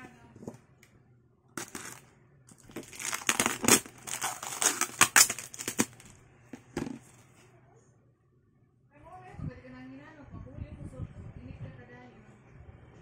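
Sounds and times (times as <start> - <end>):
plastic wrap crinkling: 1.6 - 6.2.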